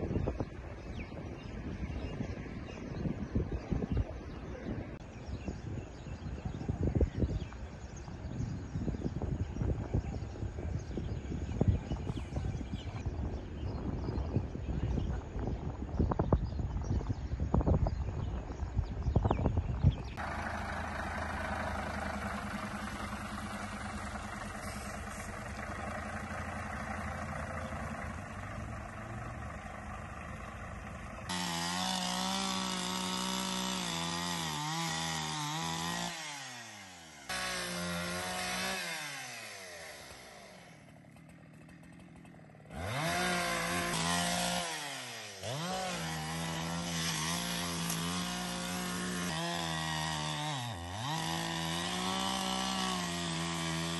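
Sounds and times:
steady engine hum: 18.6 - 53.9
chainsaw cutting wood: 31.2 - 53.9.

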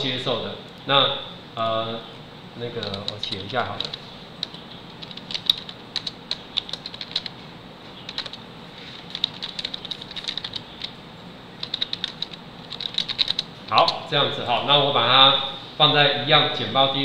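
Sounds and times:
computer keyboard key clicks: 2.8 - 7.3, 8.1 - 8.4, 9.1 - 10.9, 11.6 - 14.0.

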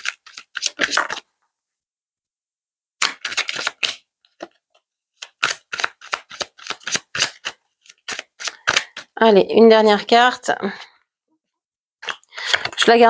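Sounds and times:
playing cards being shuffled: 0.0 - 1.3, 3.0 - 4.6, 5.2 - 9.2.

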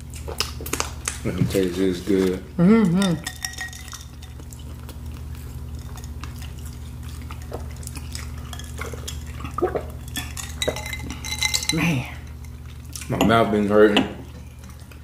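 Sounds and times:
steady low hum: 0.0 - 15.0
person sipping water: 4.4 - 10.1.

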